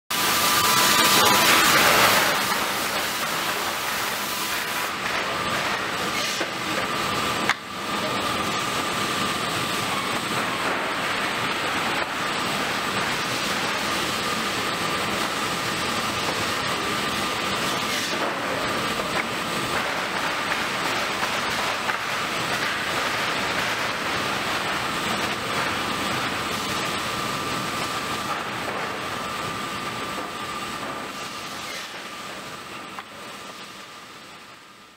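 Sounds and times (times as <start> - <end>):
saw cutting through lumber: 17.6 - 18.5.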